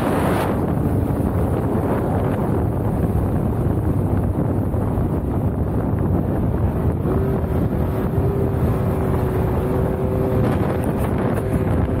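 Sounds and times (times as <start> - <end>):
buggy engine rumble: 0.0 - 12.0
wind on microphone: 0.0 - 12.0.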